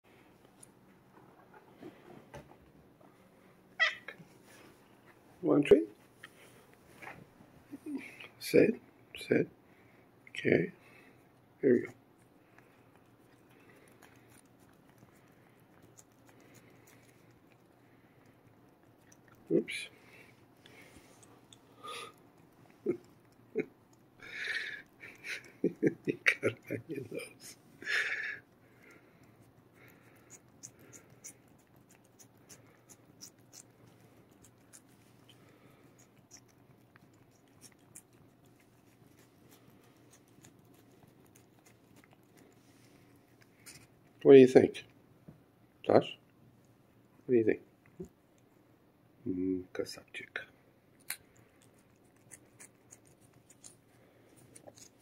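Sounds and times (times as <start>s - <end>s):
cat licking clicks and smacks: 12.4s - 19.5s, 28.5s - 42.6s.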